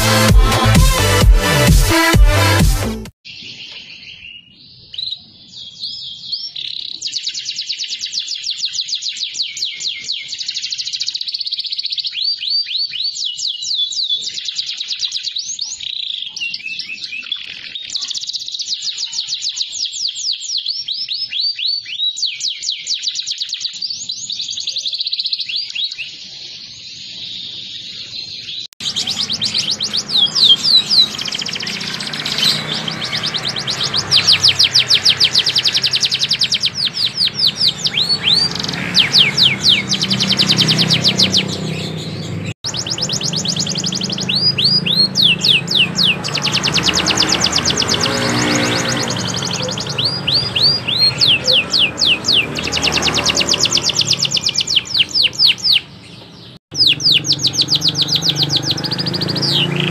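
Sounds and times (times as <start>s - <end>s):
canaries singing trills: 3.3s - 59.9s.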